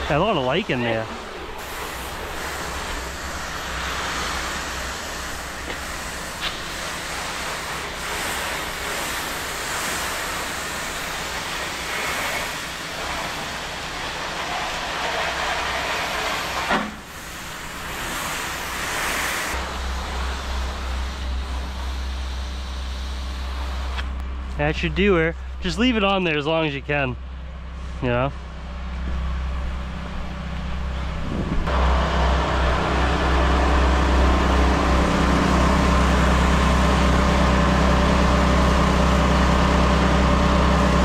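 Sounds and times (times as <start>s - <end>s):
spray gun hissing: 0.0s - 24.0s
low pump drone: 0.0s - 41.0s.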